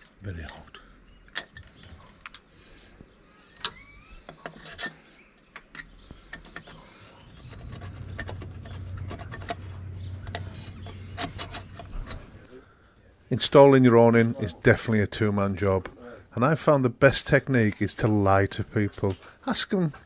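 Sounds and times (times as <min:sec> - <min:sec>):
low rumble: 0:07.2 - 0:12.5.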